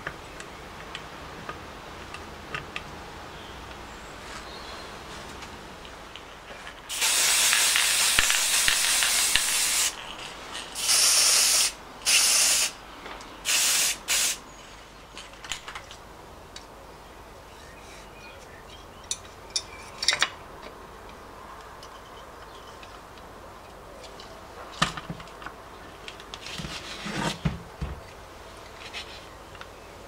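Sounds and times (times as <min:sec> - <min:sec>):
spray can hissing: 0:06.9 - 0:12.8, 0:13.5 - 0:14.4.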